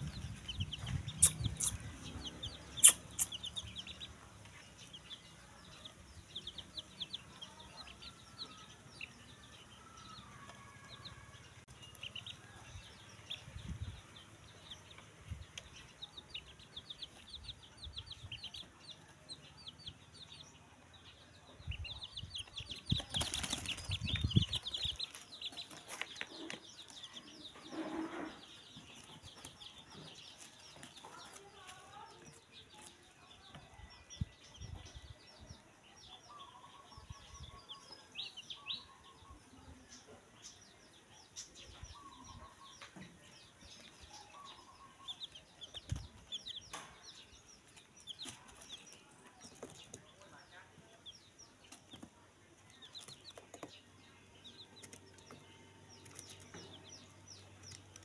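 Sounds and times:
chicks peeping: 0.0s - 58.0s
rustling and scuffling: 22.8s - 33.1s.

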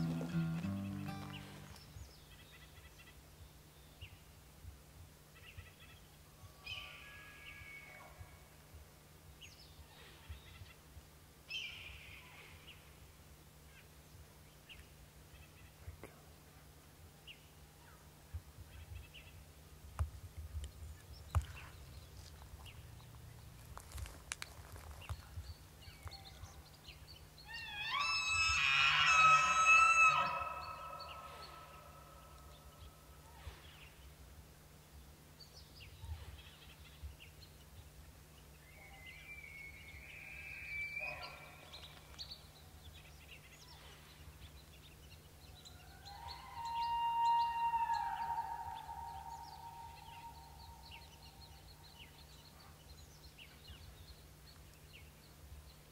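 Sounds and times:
elk bugling: 27.6s - 32.3s, 46.4s - 51.0s.

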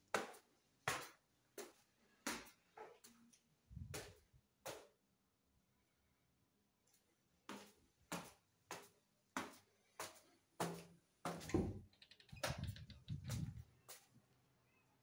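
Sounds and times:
small clicks: 11.9s - 13.4s.

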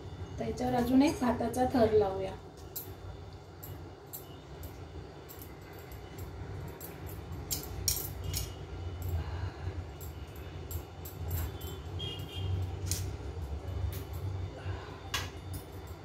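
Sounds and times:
steady low hum: 0.0s - 16.0s
metal clinks and scrapes: 2.6s - 14.5s.

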